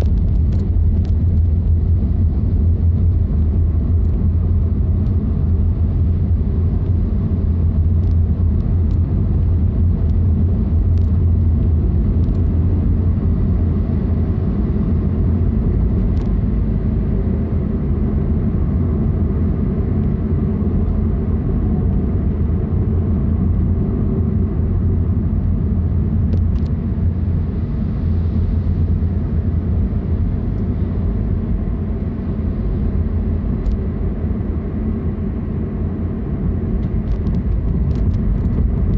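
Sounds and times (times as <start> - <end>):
car driving rumble: 0.0 - 38.9.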